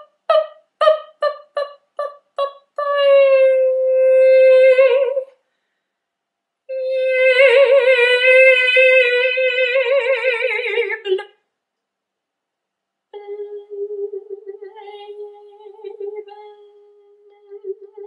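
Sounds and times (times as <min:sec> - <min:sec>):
woman singing wordlessly: 0:00.0 - 0:05.3, 0:06.7 - 0:11.4, 0:13.2 - 0:18.0.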